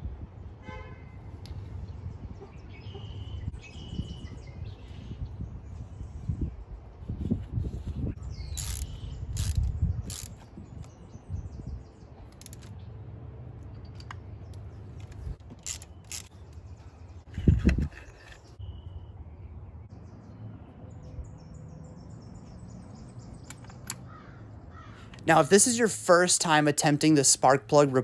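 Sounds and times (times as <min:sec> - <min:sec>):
ratchet ticking: 0:08.6 - 0:10.4, 0:15.4 - 0:16.3.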